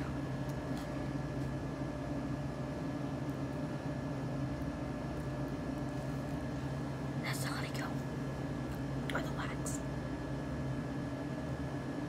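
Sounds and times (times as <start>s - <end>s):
steady background hum: 0.0s - 12.0s.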